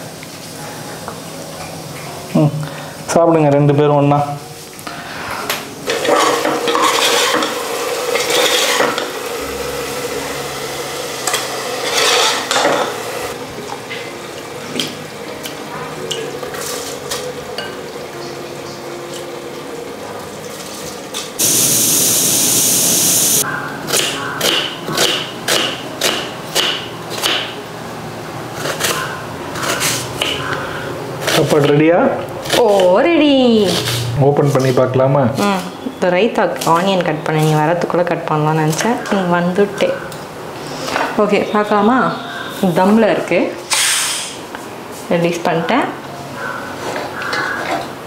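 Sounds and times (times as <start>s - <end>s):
metal ladle scraping pot: 5.9s - 13.4s
knife chopping on wooden board: 24.0s - 27.5s.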